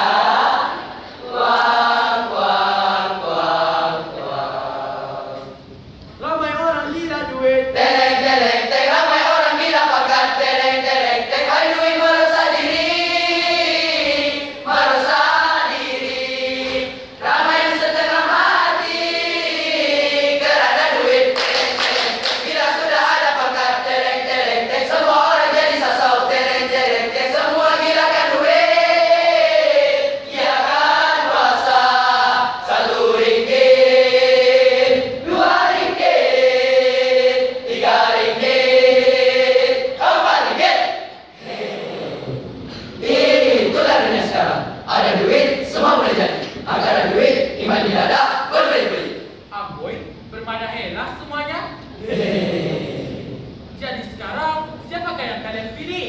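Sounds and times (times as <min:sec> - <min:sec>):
boys choir singing: 0:00.0 - 0:05.9, 0:06.5 - 0:49.5, 0:51.8 - 0:53.8
hand claps: 0:21.4 - 0:22.5.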